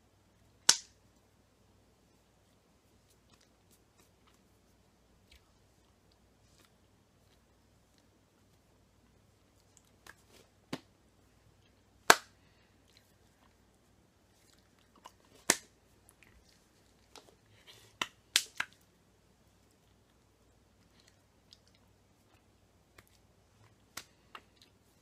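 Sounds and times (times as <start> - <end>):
hands slapping and brushing: 9.7 - 11.0.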